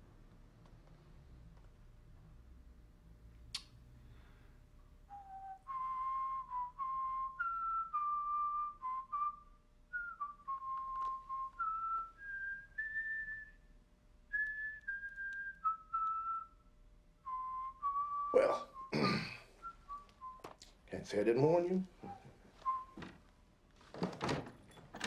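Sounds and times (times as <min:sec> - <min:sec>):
person whistling a tune: 0:05.1 - 0:13.7, 0:14.3 - 0:16.6, 0:17.2 - 0:19.0, 0:19.6 - 0:20.6, 0:22.0 - 0:23.0.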